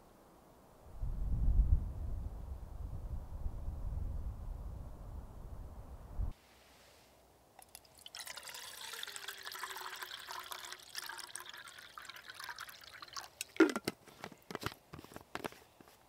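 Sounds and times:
water pouring: 7.6 - 13.8.

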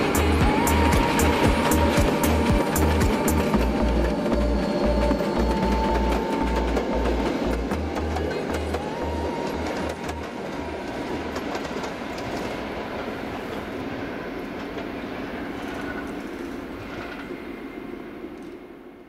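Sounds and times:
wheels clicking over rail joints: 0.0 - 13.6
train rolling rumble: 0.0 - 19.0.

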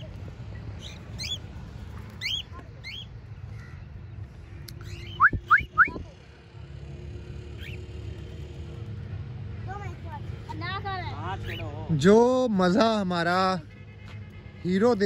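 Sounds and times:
cockatiels chirping: 0.8 - 1.4, 2.2 - 3.1.

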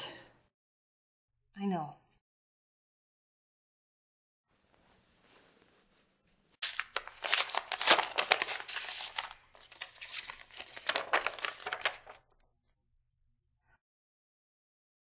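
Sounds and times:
paper rustling and crinkling: 6.6 - 12.3.

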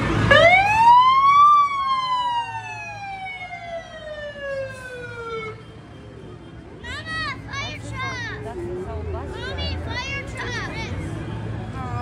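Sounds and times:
fire truck siren wailing: 0.0 - 6.1.

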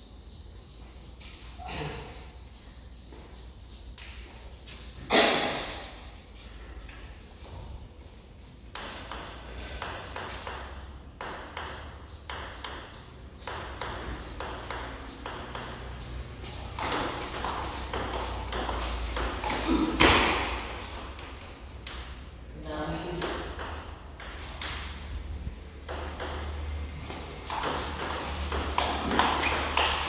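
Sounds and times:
table tennis ball hits: 8.7 - 16.0, 16.7 - 22.2, 23.1 - 25.0, 25.8 - 26.8, 27.4 - 30.0.

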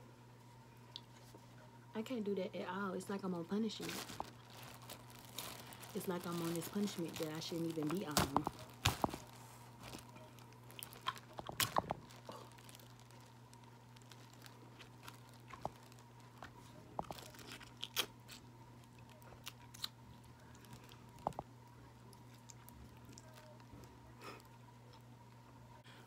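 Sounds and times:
crab shells cracking: 9.9 - 16.4
chewing: 9.9 - 25.1.

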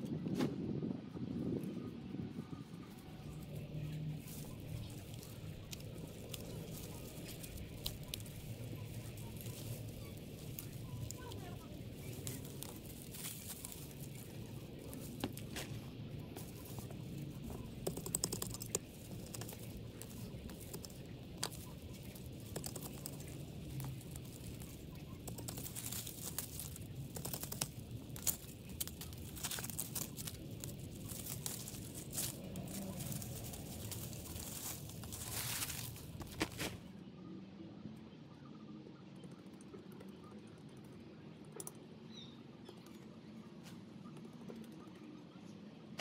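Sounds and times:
dry plant debris rustling: 2.6 - 36.9.

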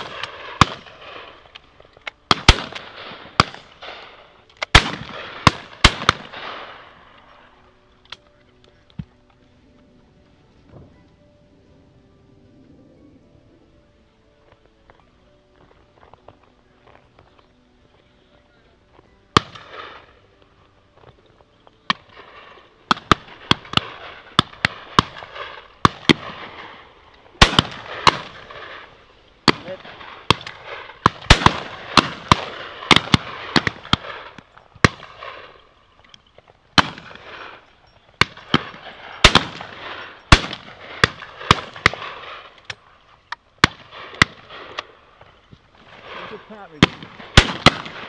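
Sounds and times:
shotguns firing with echo: 0.0 - 7.2, 19.3 - 20.2, 21.9 - 35.7, 36.7 - 42.8, 43.6 - 48.0.

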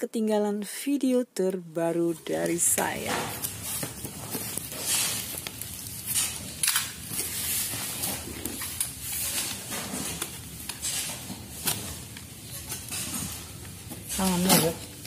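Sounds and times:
cardboard rustling and ripping: 2.9 - 13.3
blade scraping through packing tape: 3.4 - 13.6.

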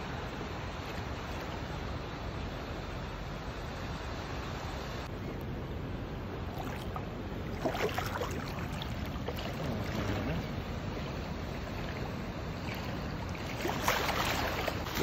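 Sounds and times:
seawater sloshing and splashing: 6.4 - 15.0.

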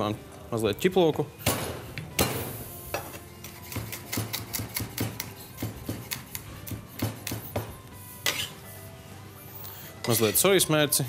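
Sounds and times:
knife chopping on wooden board: 3.6 - 7.7.

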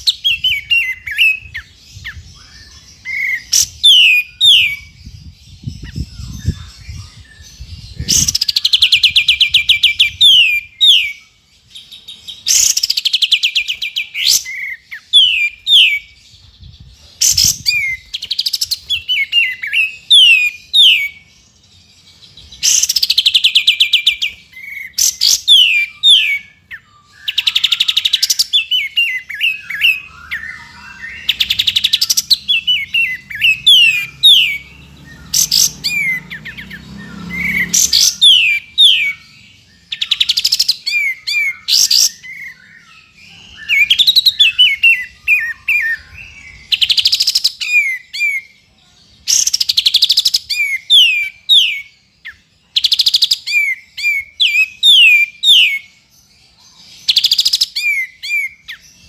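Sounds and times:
bird buzzy trills: 17.2 - 48.4.

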